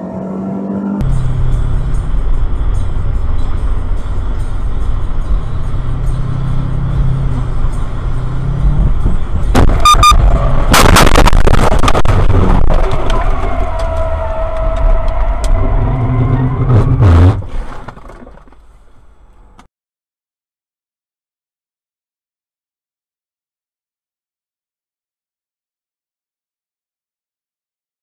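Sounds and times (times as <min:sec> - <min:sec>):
road and tyre noise: 0:00.0 - 0:19.7
short electronic beep: 0:09.8 - 0:10.2
car crashing and scraping: 0:10.6 - 0:18.9
car crash impacts: 0:10.7 - 0:13.9.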